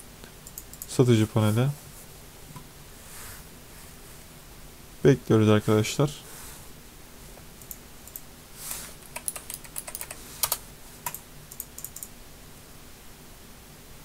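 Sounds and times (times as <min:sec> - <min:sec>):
computer keyboard typing: 0:00.4 - 0:00.9, 0:09.0 - 0:12.1.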